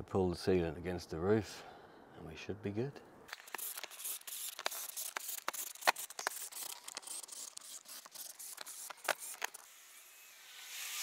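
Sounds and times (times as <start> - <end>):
drill driving screws: 3.3 - 11.0.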